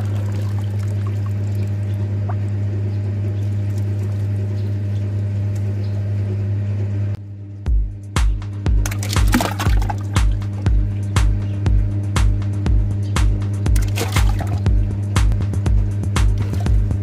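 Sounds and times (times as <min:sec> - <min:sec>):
water pouring into a toilet bowl: 0:00.0 - 0:01.7, 0:08.9 - 0:10.1, 0:13.8 - 0:14.6
steady low hum: 0:00.0 - 0:17.0.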